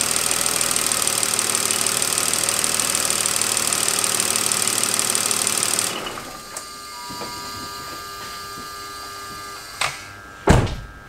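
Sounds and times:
car engine revving then idling: 0.0s - 6.5s.

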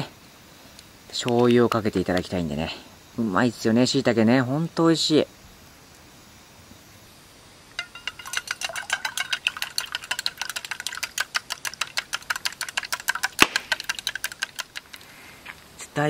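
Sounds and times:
chopsticks clicking against metal mug: 7.8s - 15.0s.

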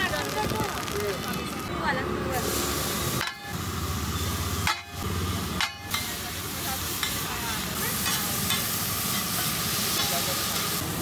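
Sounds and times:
onions sizzling in butter: 2.3s - 11.0s.

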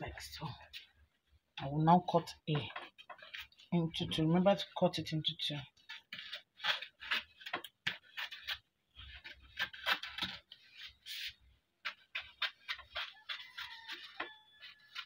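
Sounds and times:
scissors snipping fabric: 11.9s - 15.0s.

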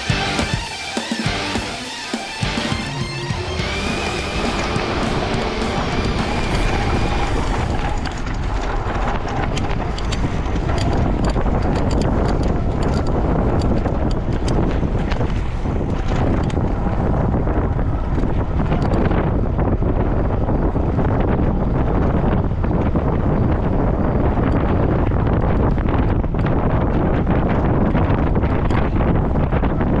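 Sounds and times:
wind buffeting microphone: 2.4s - 30.0s.

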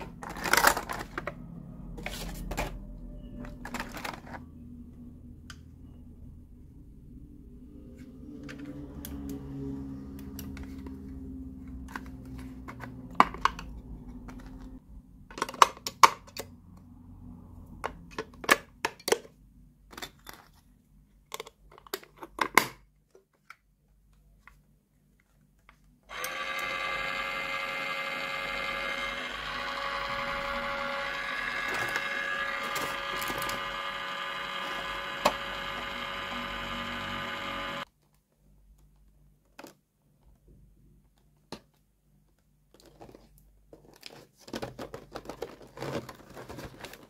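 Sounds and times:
small electric motor whirring: 26.1s - 37.9s.

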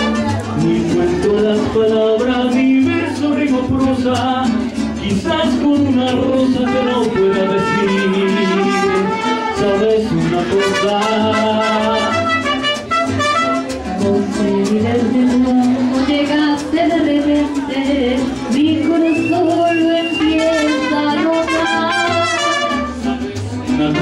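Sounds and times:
trumpet: 0.0s - 0.6s, 6.5s - 13.9s, 20.0s - 23.2s
mariachi band playing: 0.0s - 24.0s
strummed guitars: 0.0s - 24.0s.

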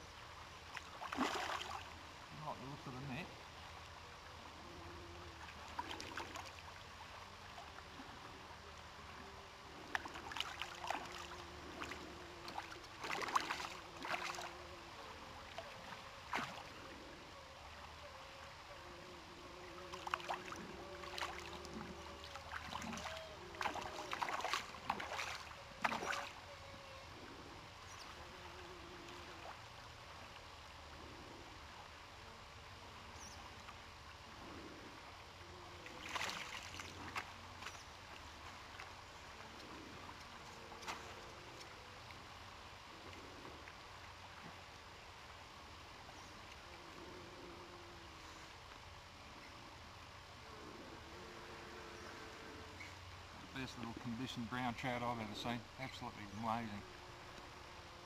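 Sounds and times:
steady low hiss: 0.0s - 58.0s
fish splashing in water: 0.8s - 1.9s, 9.8s - 14.5s, 15.5s - 16.8s, 19.9s - 26.4s, 35.9s - 37.8s.

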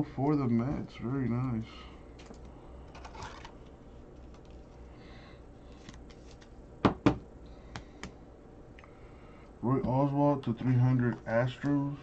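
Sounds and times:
card rustling and sliding: 5.7s - 6.6s.

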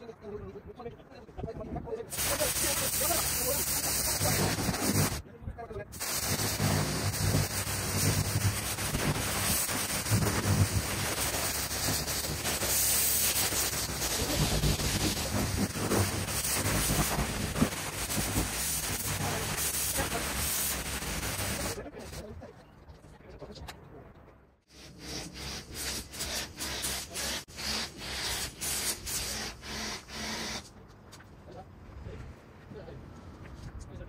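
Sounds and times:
pressure washer spraying hiss: 2.1s - 5.2s, 5.9s - 22.2s, 24.7s - 30.7s.

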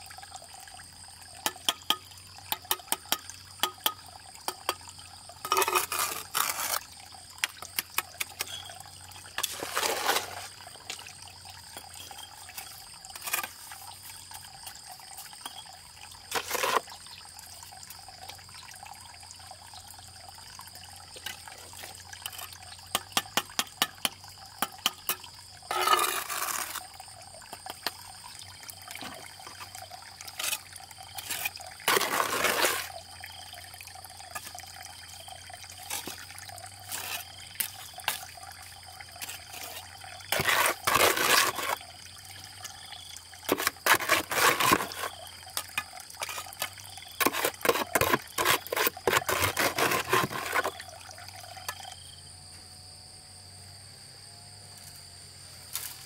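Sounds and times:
trowel scraping mortar: 5.4s - 6.9s, 9.3s - 10.6s, 12.1s - 13.9s, 16.3s - 16.9s, 25.7s - 26.9s, 30.3s - 33.0s, 36.8s - 38.3s, 39.2s - 41.8s, 43.5s - 50.8s.

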